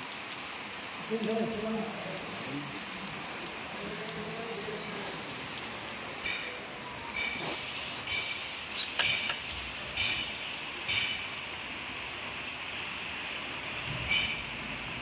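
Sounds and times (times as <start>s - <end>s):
steady hiss: 0.0s - 15.0s
hand tools clinking on metal: 7.2s - 9.4s.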